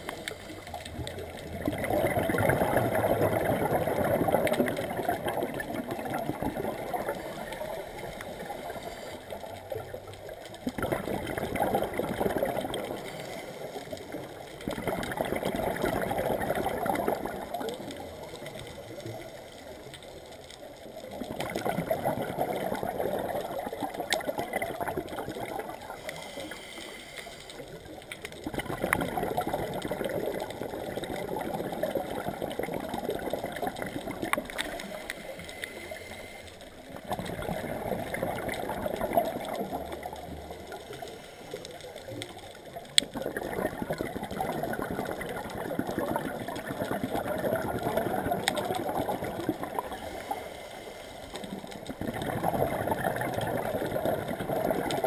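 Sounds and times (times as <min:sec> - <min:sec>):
bubbling exhaled air: 0:00.0 - 0:55.0
diver breathing through regulator: 0:26.0 - 0:27.6, 0:34.6 - 0:36.7, 0:50.0 - 0:51.4.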